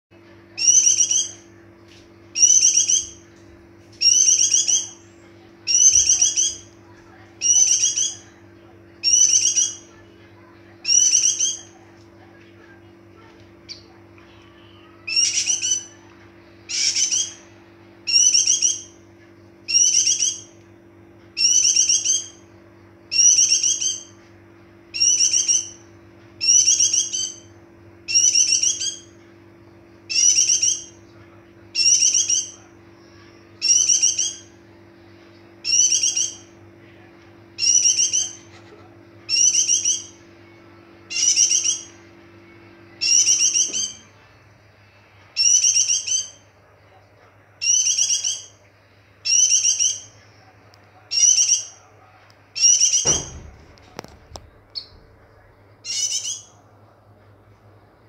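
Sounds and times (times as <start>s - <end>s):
small bird twittering: 0.6s - 1.5s, 2.4s - 3.3s, 4.0s - 5.1s, 5.7s - 6.7s, 7.4s - 8.4s, 9.0s - 10.0s, 10.8s - 11.8s, 15.0s - 16.0s, 16.7s - 17.5s, 18.1s - 19.0s, 19.7s - 20.6s, 21.4s - 22.5s, 23.1s - 24.2s, 24.9s - 27.5s, 28.1s - 29.2s, 30.1s - 31.0s, 31.8s - 34.6s, 35.6s - 36.6s, 37.6s - 38.5s, 39.3s - 40.3s, 41.1s - 42.0s, 43.0s - 44.2s, 45.4s - 46.5s, 47.6s - 48.6s, 49.2s - 50.2s, 51.1s - 51.8s, 52.6s - 55.2s, 55.8s - 56.6s.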